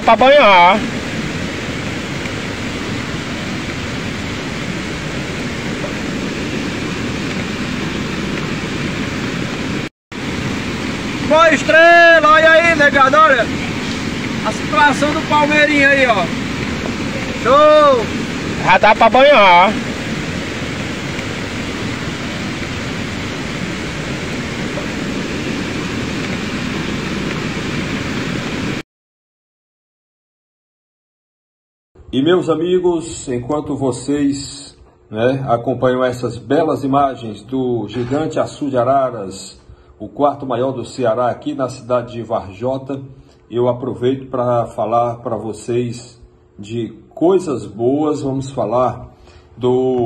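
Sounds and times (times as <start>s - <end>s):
floodwater rushing over a wall: 0.0s - 28.8s.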